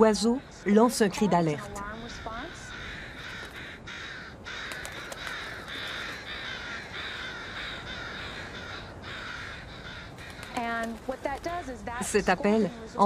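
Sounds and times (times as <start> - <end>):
crows cawing: 0.0 - 13.0.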